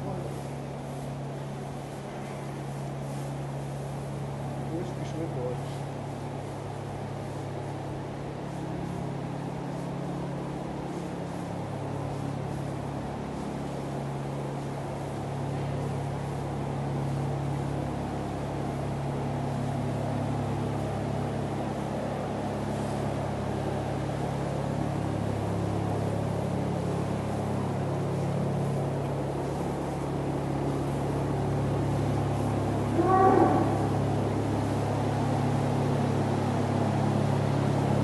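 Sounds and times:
low mechanical hum of machinery: 0:00.0 - 0:38.0
short call: 0:32.9 - 0:34.2.

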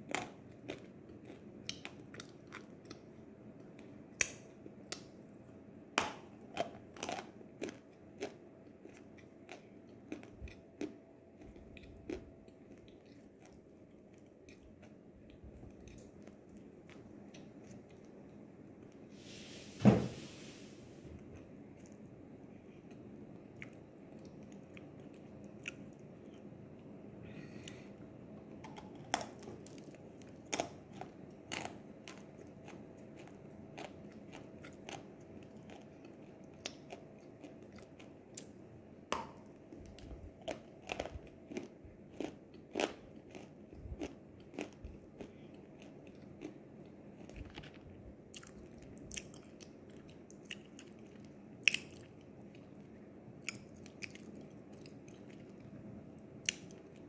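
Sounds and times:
person chewing crunchy clay: 0:00.0 - 0:03.1, 0:06.0 - 0:18.1, 0:28.5 - 0:38.5, 0:39.2 - 0:55.8.

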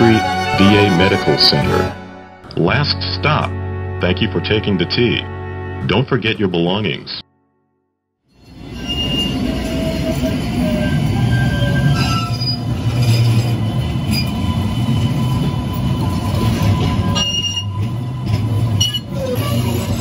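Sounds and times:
high wheel squeals: 0:08.4 - 0:20.0
trolley rumble of motors and wheels: 0:08.4 - 0:20.0.

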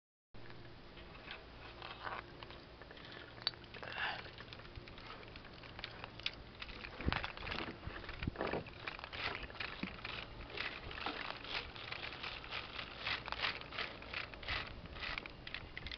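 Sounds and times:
camera handling rustle and clicks: 0:01.2 - 0:15.9.

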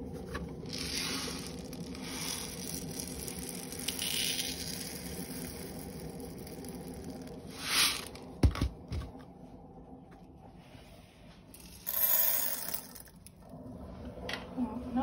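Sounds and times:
granules pouring into plastic cap: 0:00.6 - 0:08.2, 0:11.6 - 0:13.2.

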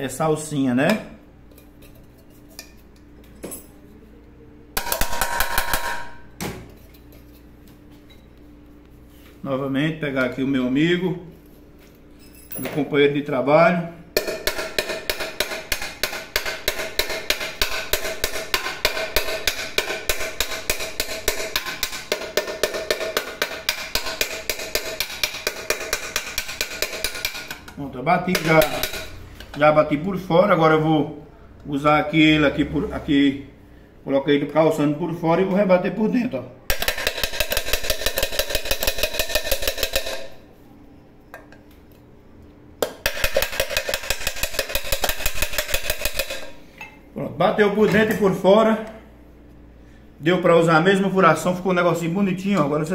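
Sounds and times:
small hammer tapping metal pot: 0:14.2 - 0:29.1, 0:36.7 - 0:40.4, 0:42.8 - 0:47.0.

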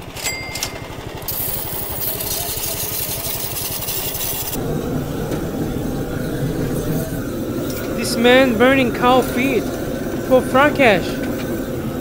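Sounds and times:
small engine pulsing: 0:00.0 - 0:12.0
knife scraping on grinding wheel: 0:01.3 - 0:12.0
low rushing noise: 0:04.6 - 0:12.0.

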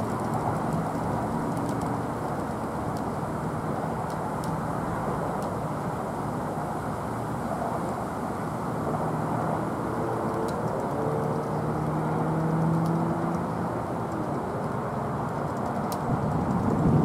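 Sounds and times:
jet engine rumble: 0:13.1 - 0:17.0.

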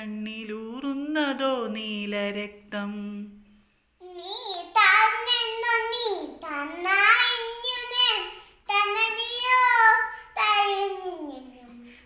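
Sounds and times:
child chanting in sing-song voice: 0:04.0 - 0:12.0.

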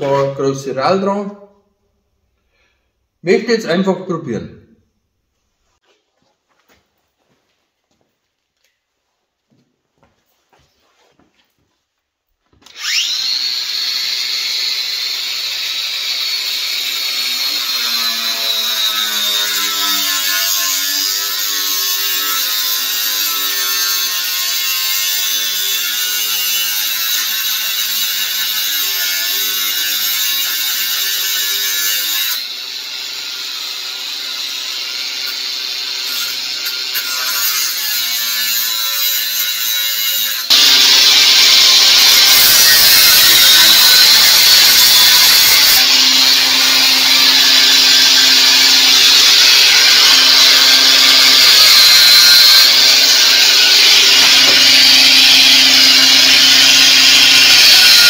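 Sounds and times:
angle grinder cutting metal tubing: 0:12.6 - 0:58.0.

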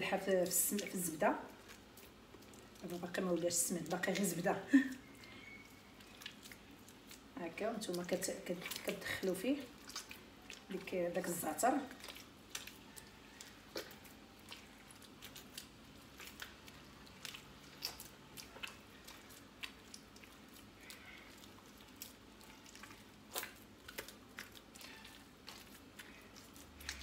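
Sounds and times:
faint wet squelching: 0:00.0 - 0:27.0
hands kneading butter: 0:00.0 - 0:27.0
small clicks and smacks: 0:01.5 - 0:03.2, 0:11.8 - 0:27.0.

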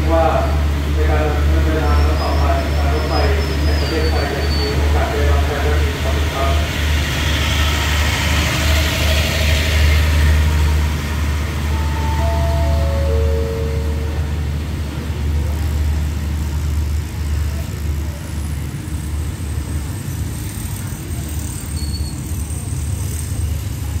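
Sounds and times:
train low rumble: 0:00.0 - 0:24.0.

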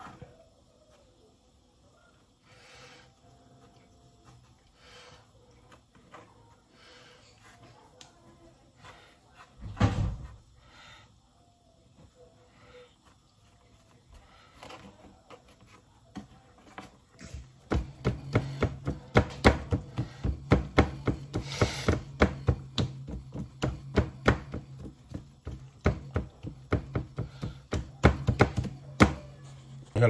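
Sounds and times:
rolling pin knocking: 0:17.6 - 0:29.3.

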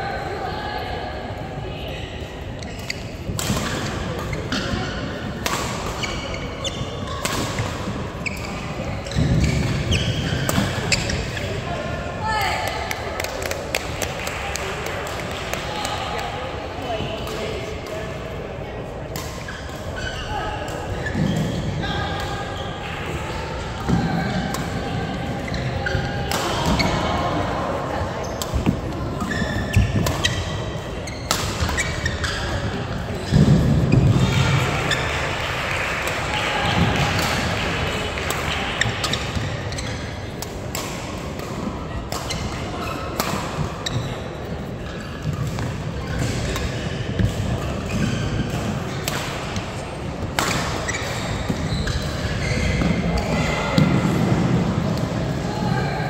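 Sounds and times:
racket hitting shuttlecock: 0:02.8 - 0:06.1, 0:28.4 - 0:32.5, 0:38.2 - 0:44.0, 0:45.2 - 0:54.0
shoes squeaking on floor: 0:06.0 - 0:07.2, 0:08.2 - 0:11.5, 0:19.4 - 0:21.7, 0:25.4 - 0:26.2, 0:28.2 - 0:34.0, 0:38.8 - 0:40.2, 0:42.2 - 0:49.0, 0:50.8 - 0:53.5.

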